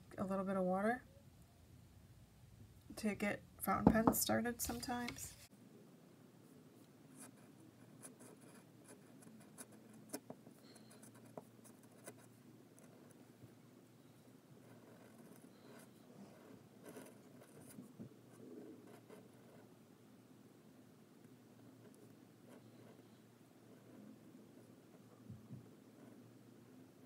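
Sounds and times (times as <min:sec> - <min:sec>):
pen nib scratching on paper: 0:07.2 - 0:13.3, 0:14.6 - 0:19.7, 0:21.8 - 0:25.1.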